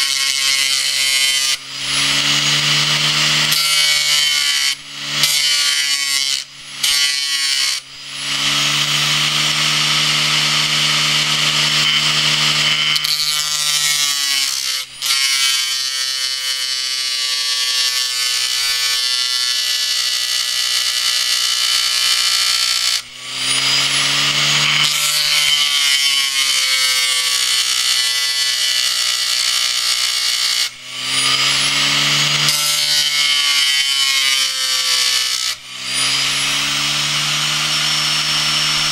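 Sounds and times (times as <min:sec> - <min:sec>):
steel tool grinding on disc: 0:00.0 - 0:38.9.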